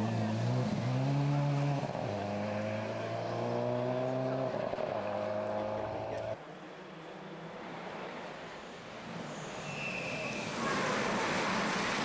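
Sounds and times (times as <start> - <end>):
rally car engine revving: 0.0 - 6.4
gravel spraying from tyres: 9.6 - 12.0.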